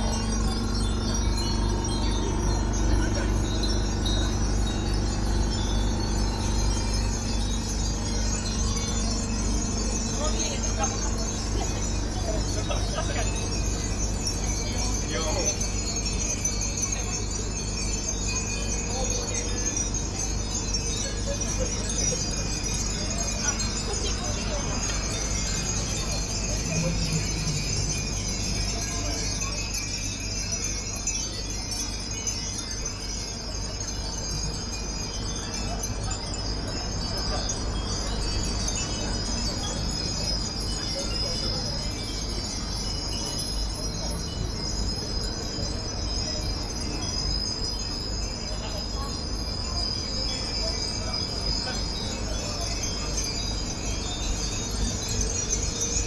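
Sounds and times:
wind bells tinkling: 0.0s - 56.0s.

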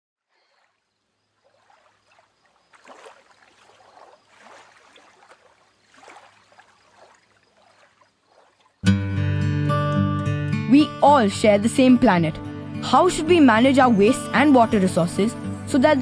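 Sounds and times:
water lapping against a boat hull: 0.2s - 8.8s.

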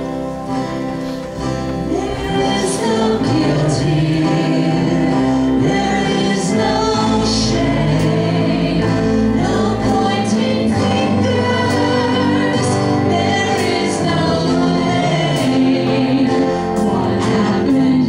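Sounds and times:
worship band playing: 0.0s - 18.0s
people singing: 1.5s - 18.0s.

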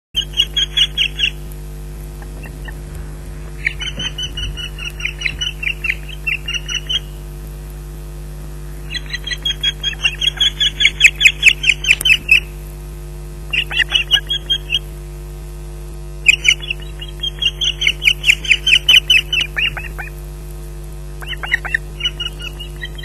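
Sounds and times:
osprey alarm calls: 0.2s - 7.3s, 8.7s - 12.6s, 13.5s - 14.9s, 16.2s - 20.2s, 21.2s - 23.0s
low electrical hum: 0.2s - 23.0s.

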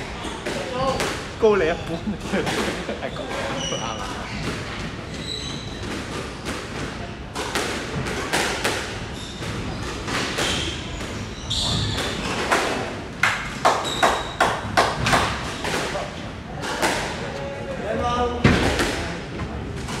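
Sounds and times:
sneakers squeaking on wooden floor: 1.8s - 6.6s, 9.0s - 12.5s, 13.8s - 14.4s
squash ball smacking rackets and walls: 2.2s - 17.3s.

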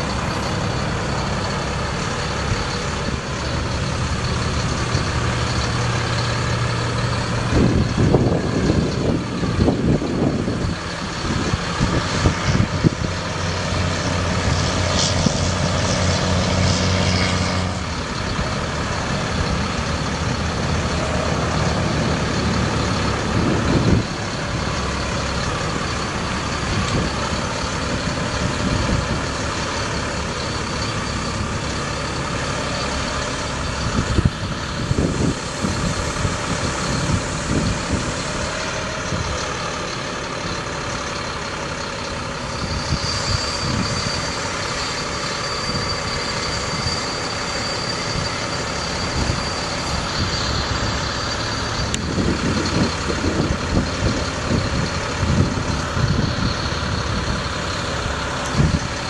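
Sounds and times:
thin high whine: 0.0s - 41.1s, 42.2s - 59.0s
truck engine running: 0.0s - 59.0s.

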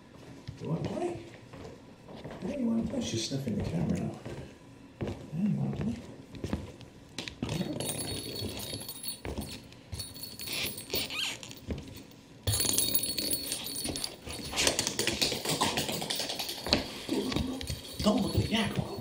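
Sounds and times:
feet shuffling on hardwood floor: 0.0s - 7.0s, 8.7s - 12.1s.

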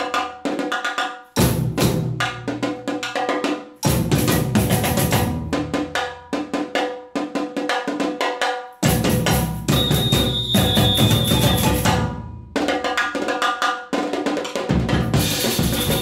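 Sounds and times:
higher drums and bells: 8.8s - 12.1s, 15.0s - 16.0s
high steady tone: 9.7s - 11.8s.

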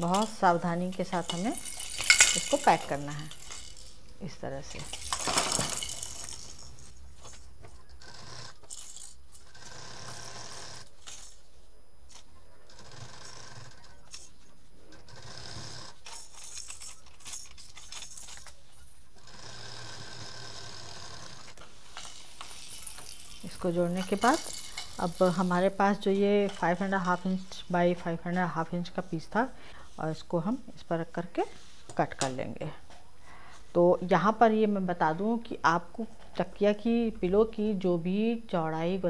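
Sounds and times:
plastic toys rattling: 0.0s - 9.6s, 10.8s - 11.5s, 15.8s - 19.1s, 21.5s - 27.6s
sewing machine stitching: 8.0s - 11.3s, 12.6s - 18.5s.

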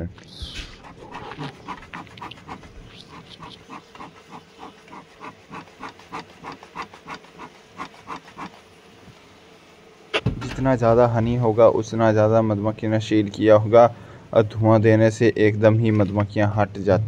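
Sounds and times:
bee smoker bellows puffing: 0.0s - 12.0s.

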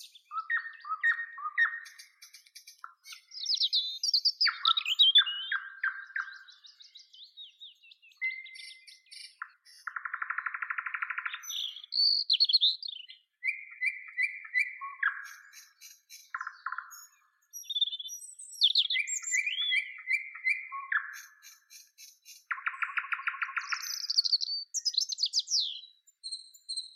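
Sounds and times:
nightingale singing: 0.0s - 26.9s.

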